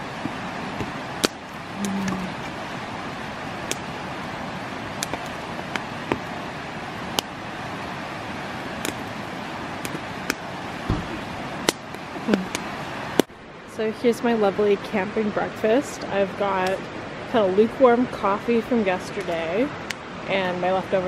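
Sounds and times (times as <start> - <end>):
low hum: 0.0 - 12.6
campfire crackling: 0.0 - 13.6, 14.2 - 21.0.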